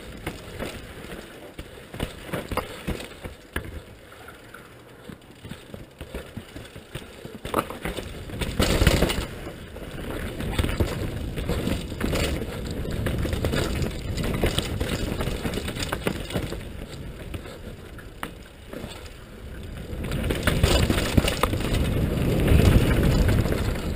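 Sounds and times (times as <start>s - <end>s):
bike rattling and knocking: 0.0s - 23.9s
tyres on dirt: 0.0s - 23.9s.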